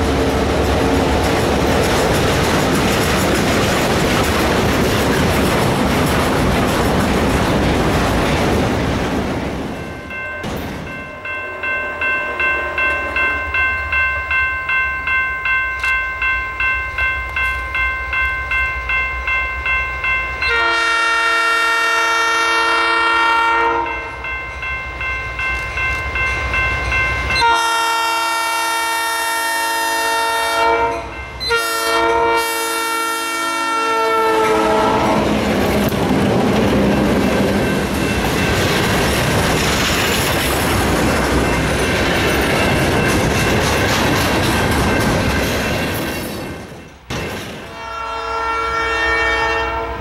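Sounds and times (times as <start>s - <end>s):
low rumble of train: 0.0s - 50.0s
electronic crossing bell pulsing: 9.8s - 20.6s
locomotive air horn blowing: 20.4s - 24.1s, 27.4s - 35.3s, 47.7s - 50.0s.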